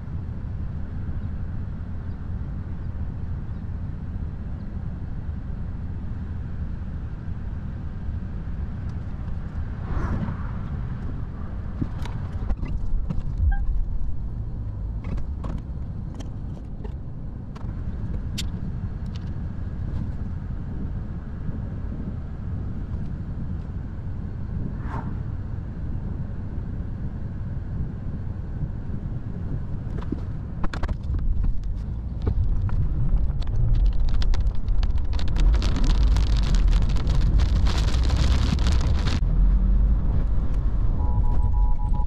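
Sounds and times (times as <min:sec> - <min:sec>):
low rumble of road and wind: 0:00.0 - 0:42.0
hiss of wind-driven rain: 0:32.2 - 0:40.5.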